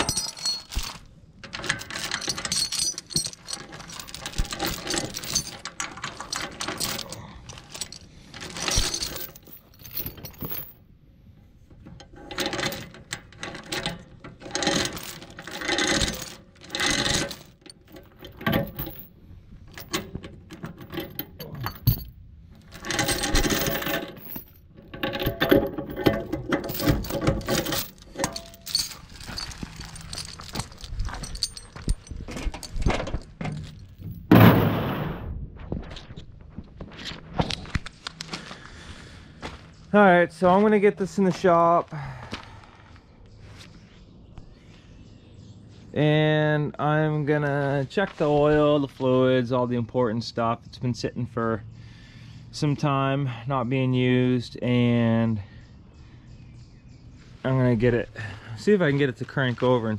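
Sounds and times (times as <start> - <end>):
steel chain clinking and rattling: 0.0 - 10.9, 11.6 - 34.3.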